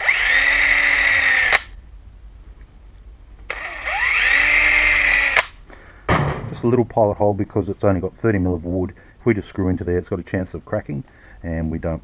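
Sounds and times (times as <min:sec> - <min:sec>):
cordless drill motor whine: 0:00.0 - 0:01.7, 0:03.5 - 0:05.6.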